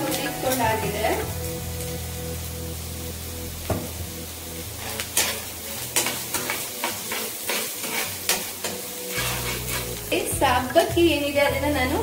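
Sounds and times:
frying sizzle: 0:00.0 - 0:12.0
metal spoon scraping a pan: 0:04.8 - 0:10.0.

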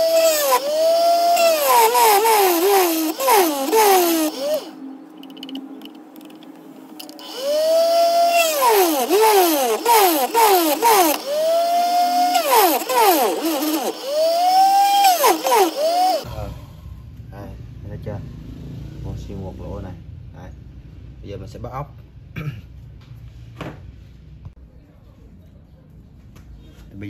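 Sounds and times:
bench drill motor whining: 0:00.0 - 0:05.6, 0:07.0 - 0:16.3.

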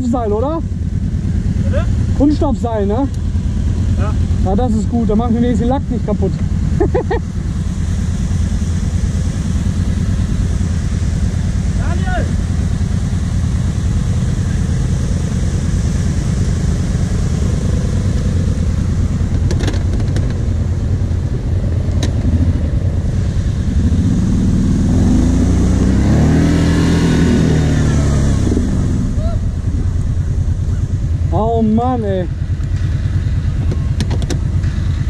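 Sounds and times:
quad engine revving: 0:00.0 - 0:35.0.

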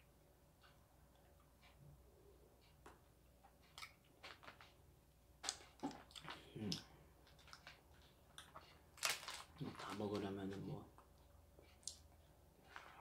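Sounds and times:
faint mouth clicks chewing: 0:03.7 - 0:04.6, 0:11.7 - 0:12.1
crackling plastic wrapping: 0:09.0 - 0:10.6.

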